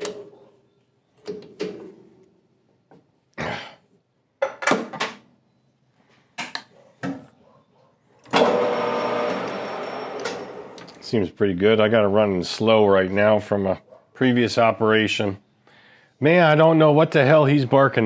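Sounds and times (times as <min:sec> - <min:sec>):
lathe running hum: 0:08.4 - 0:10.9.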